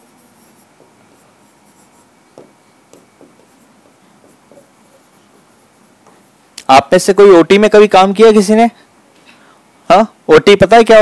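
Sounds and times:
faint handwriting scratching: 0.0 - 6.4.

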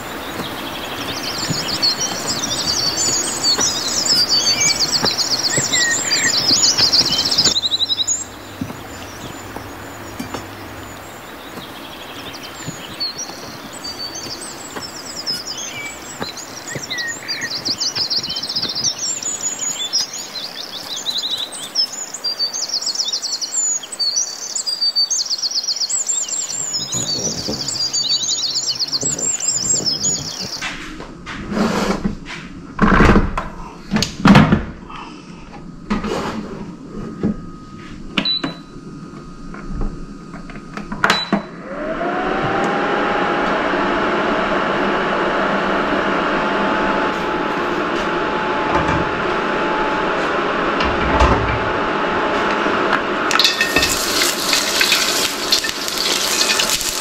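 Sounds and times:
small birds chirping and trilling: 0.0 - 30.8, 53.3 - 57.0
steady background hiss: 0.0 - 41.1, 51.9 - 57.0.

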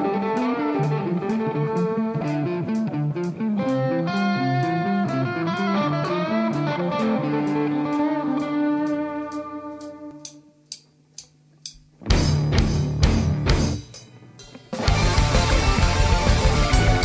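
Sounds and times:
ringing guitar notes: 0.0 - 10.5, 14.4 - 17.0
rock band with drums: 0.0 - 17.0
high ticking click: 9.3 - 11.9.

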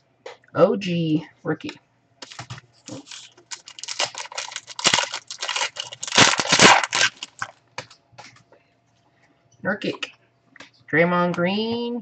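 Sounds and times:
wrapper tearing and crinkling: 2.2 - 7.6.

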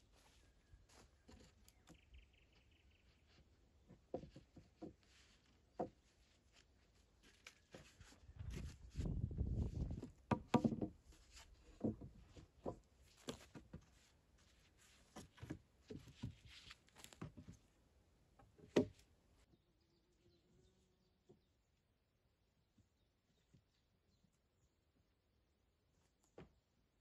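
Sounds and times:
wooden poles knocking together: 3.8 - 5.0, 5.7 - 6.1, 9.9 - 11.0, 11.6 - 13.8.

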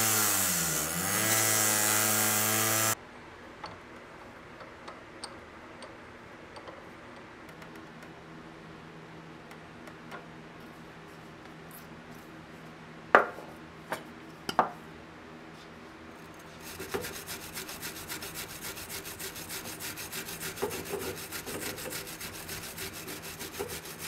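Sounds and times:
hand file rasping on steel: 16.5 - 24.0.

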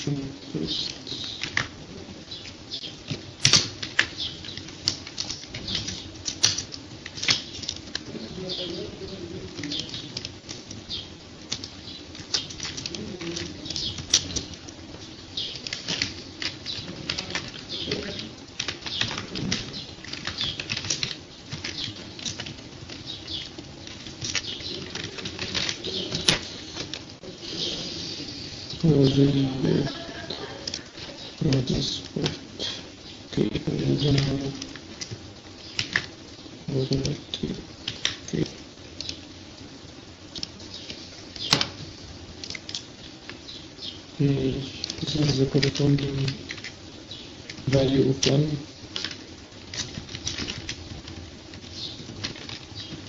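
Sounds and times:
steady low hum: 0.0 - 53.0
keyboard and mouse clicks: 2.4 - 8.1.

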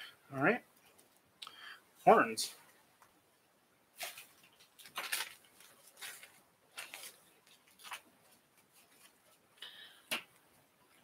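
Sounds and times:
hands rummaging rustles and clicks: 4.0 - 9.4.

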